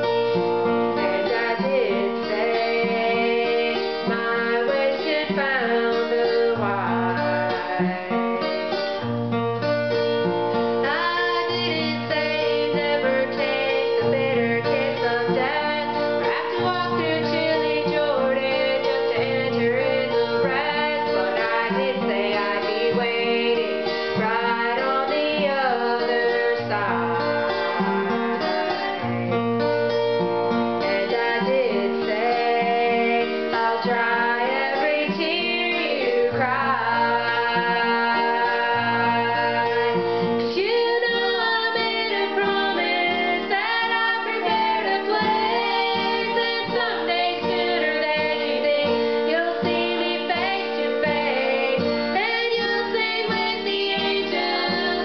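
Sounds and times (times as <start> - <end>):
acoustic guitar: 0.0 - 55.0
woman singing: 0.8 - 9.1, 10.0 - 30.0, 30.8 - 55.0.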